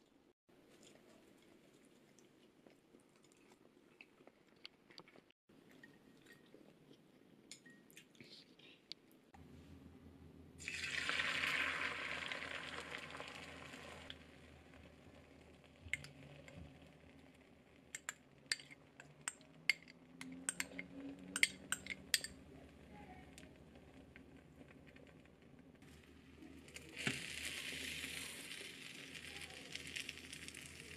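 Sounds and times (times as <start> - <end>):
egg sizzling in hot pan: 10.6 - 18.7, 25.9 - 30.9.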